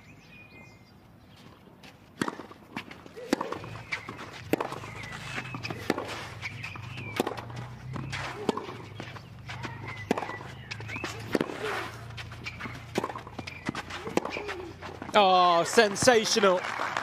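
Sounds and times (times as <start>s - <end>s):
shoes scraping on clay: 1.3s - 16.6s
racquet striking tennis ball: 2.1s - 15.4s.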